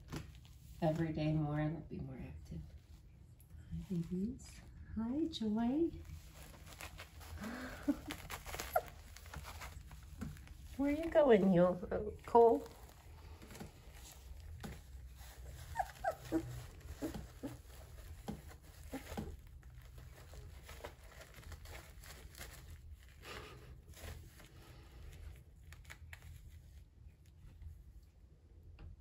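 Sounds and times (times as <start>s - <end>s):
rustling and scratching on pads: 0.0s - 28.5s
puppies crying: 8.1s - 9.5s, 15.6s - 17.8s.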